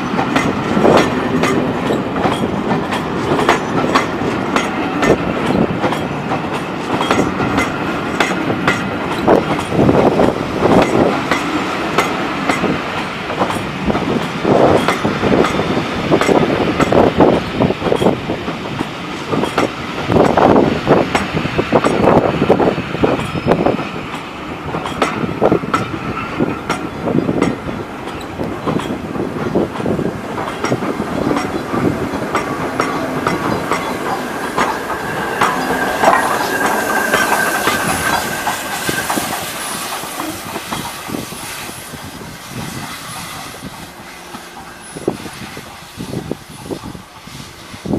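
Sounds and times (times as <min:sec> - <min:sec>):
train wheels clicking over rail joints: 0:00.0 - 0:47.9
steady wheel squeal: 0:33.4 - 0:42.0.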